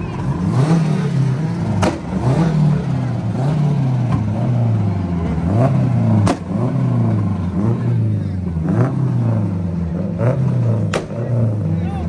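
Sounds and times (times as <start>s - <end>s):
car engine revving: 0.0s - 12.0s
sharp exhaust bangs: 0.3s - 4.6s, 5.2s - 7.8s.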